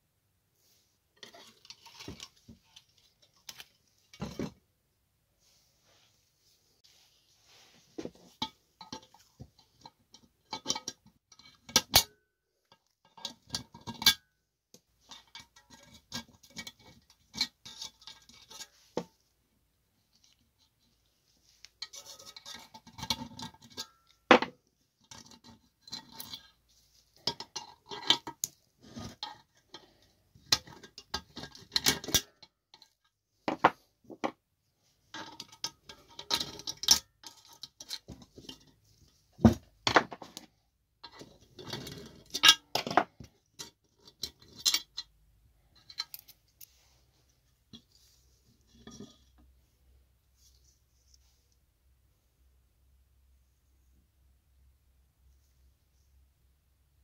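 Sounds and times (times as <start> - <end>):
scraping or brushing: 5.4 - 8.4, 46.6 - 51.6.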